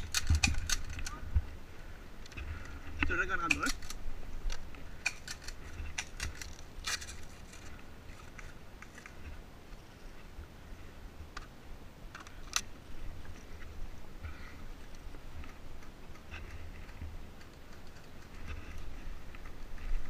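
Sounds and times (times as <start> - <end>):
sharp clicks and snaps: 0.0 - 1.2, 3.0 - 7.2
wind rumble on microphone: 0.0 - 3.2.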